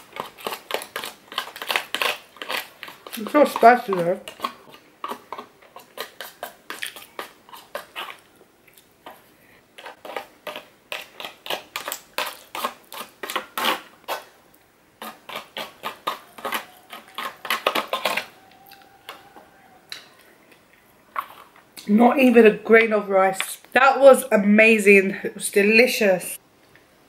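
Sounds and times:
fork scraping foil tray: 0.0 - 8.4, 9.0 - 14.3, 15.0 - 19.4.

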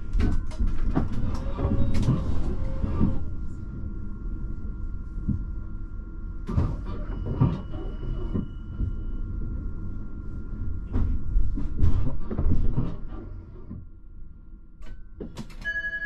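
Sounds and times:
low rumble: 0.0 - 15.2
electrical hum: 0.0 - 16.0
door warning tone: 6.3 - 11.4, 14.6 - 16.0.

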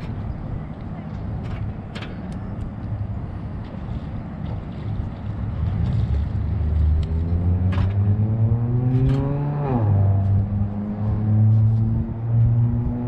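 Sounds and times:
wind rumble on microphone: 0.0 - 13.0
vehicle engine accelerating: 5.4 - 13.0.

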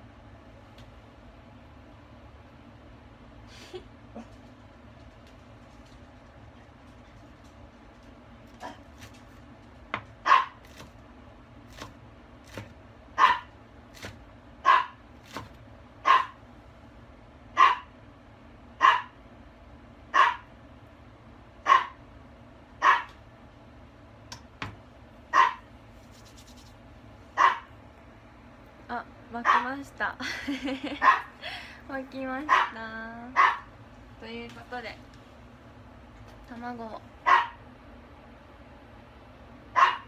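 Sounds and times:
dog barking: 10.2 - 10.6, 13.2 - 13.5, 14.6 - 15.0, 16.0 - 16.4, 17.6 - 17.9, 18.8 - 19.2, 20.1 - 20.5, 21.6 - 22.0, 22.8 - 23.2, 25.3 - 25.6, 27.4 - 27.7, 29.4 - 29.7, 31.0 - 31.3, 32.5 - 32.8, 33.4 - 33.7, 37.2 - 37.6, 39.8 - 40.0.

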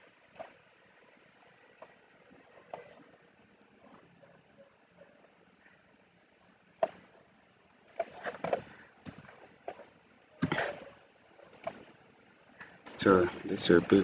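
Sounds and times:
mouse and keyboard clicks: 0.3 - 0.6, 6.8 - 7.2, 7.8 - 10.9, 11.5 - 11.9.

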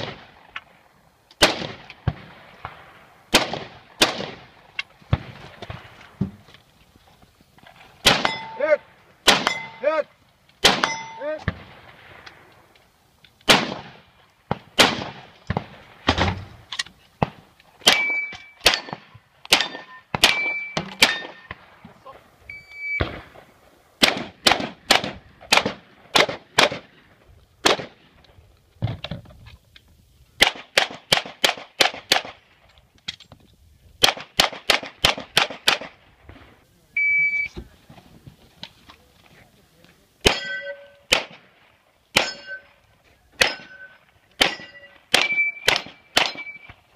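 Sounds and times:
rifle shots: 0.0 - 0.4, 1.4 - 5.9, 8.0 - 9.9, 10.6 - 12.3, 13.4 - 21.7, 22.8 - 27.0, 27.6 - 28.0, 30.4 - 32.4, 34.0 - 36.5, 40.2 - 42.8, 43.4 - 46.9
pistol shots: 1.4 - 4.5, 8.0 - 9.8, 10.6 - 11.9, 13.4 - 16.4, 17.2 - 21.6, 24.0 - 27.0, 27.6 - 28.0, 30.4 - 32.4, 34.0 - 36.0, 40.2 - 42.7, 43.4 - 46.8
metallic ring of steel targets: 8.2 - 8.7, 9.4 - 10.0, 10.8 - 11.4, 17.9 - 19.0, 19.6 - 21.5, 40.2 - 41.1, 42.2 - 42.8, 43.4 - 46.8.

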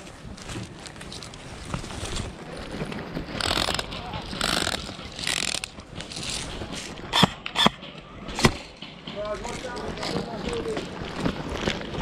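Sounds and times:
airsoft gun bursts rattling: 3.4 - 6.4.

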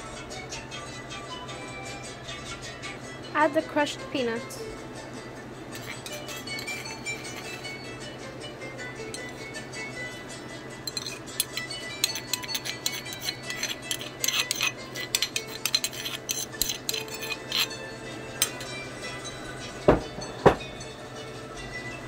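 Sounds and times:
soft background music: 0.0 - 22.0
stone mortar tapping and scraping: 10.9 - 17.7.

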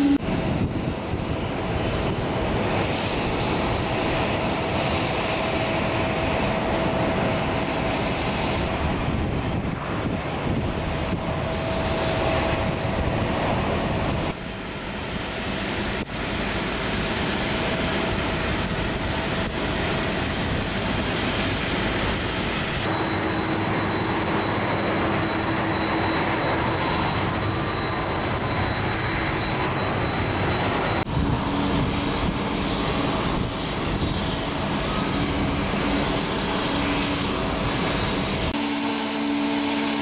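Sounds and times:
thin high whine: 0.0 - 0.6, 34.4 - 40.0
jet engine roar: 0.0 - 40.0.

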